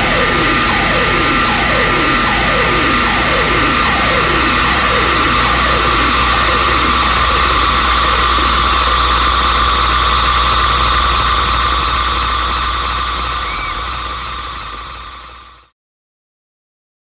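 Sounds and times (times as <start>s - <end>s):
electric guitar feedback drone: 0.0s - 15.7s
low hum: 0.0s - 15.7s.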